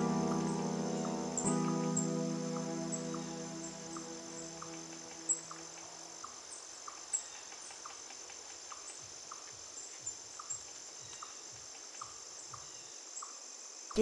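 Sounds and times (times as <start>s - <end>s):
background music: 0.0s - 6.2s
crickets chirring: 0.0s - 14.0s.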